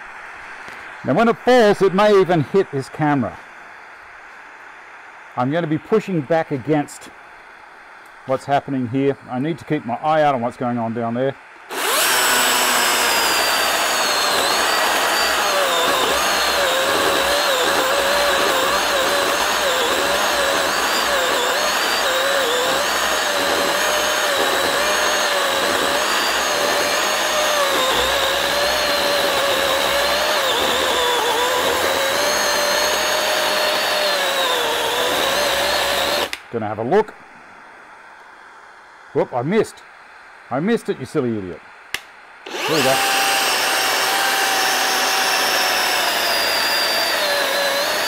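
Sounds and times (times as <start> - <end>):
chainsaw cutting log: 11.7 - 36.4, 42.5 - 48.0.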